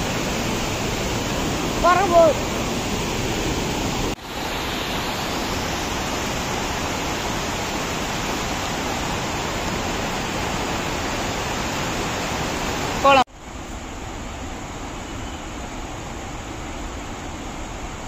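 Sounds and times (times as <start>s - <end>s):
water rushing over rocks: 0.0s - 13.2s.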